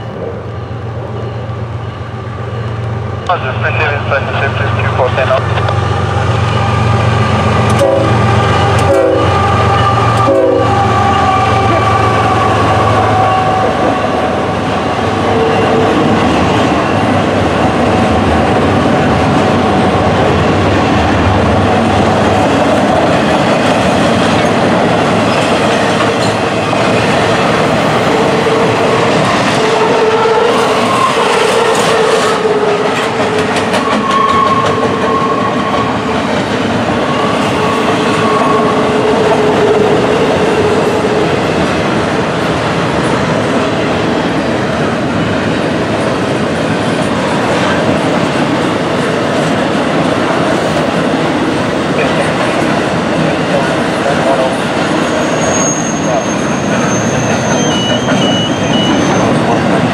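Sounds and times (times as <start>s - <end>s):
diesel locomotive engine hum: 0.0s - 59.9s
train wheels rumbling and clacking: 4.2s - 59.9s
high-pitched wheel squeal: 33.8s - 36.0s, 37.1s - 39.5s, 55.0s - 59.5s.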